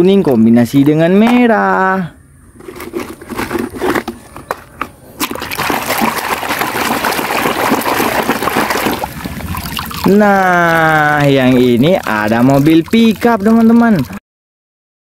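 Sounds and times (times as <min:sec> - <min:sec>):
water sloshing and splashing: 0:05.2 - 0:14.2
brush scrubbing: 0:05.3 - 0:14.0.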